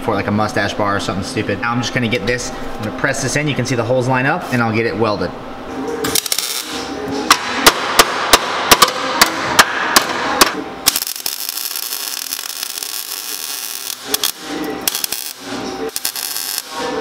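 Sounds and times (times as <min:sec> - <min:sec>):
welder arc crackling: 0:06.1 - 0:06.8, 0:10.4 - 0:17.0.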